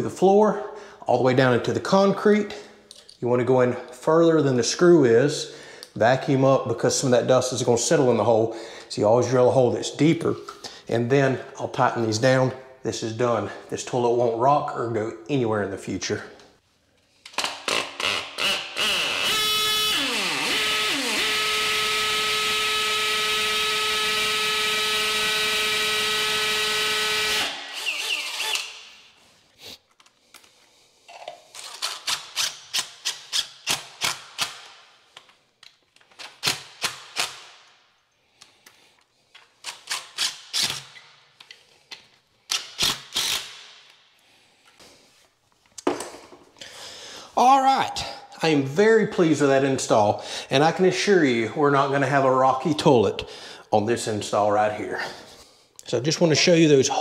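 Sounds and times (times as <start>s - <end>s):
drill motor running: 18.1s - 28.7s
short drill trigger bursts: 24.0s - 28.8s, 42.8s - 43.6s.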